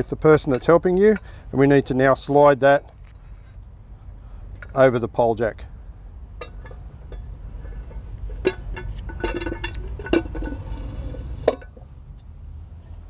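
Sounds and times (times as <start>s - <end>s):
metal clinks and knocks: 6.4s - 12.3s
metal ringing squeal: 6.5s - 11.8s.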